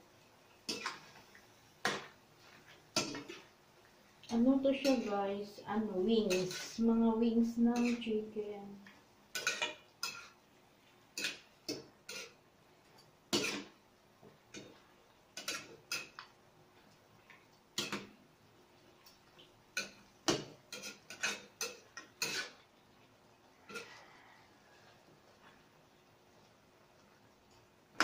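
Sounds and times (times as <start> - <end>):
metal spatula scraping a wok: 6.2 - 7.0, 20.7 - 22.6.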